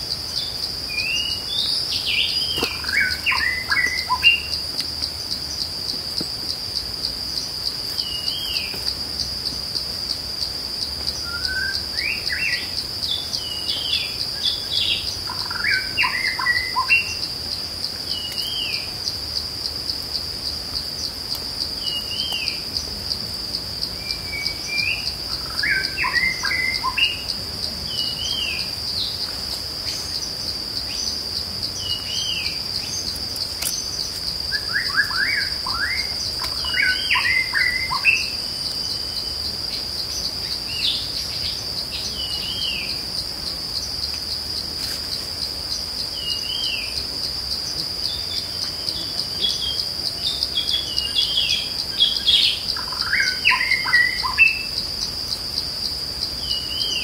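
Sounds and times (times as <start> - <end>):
high-pitched insect drone: 0.0 - 57.0
birds chirping: 0.3 - 4.6.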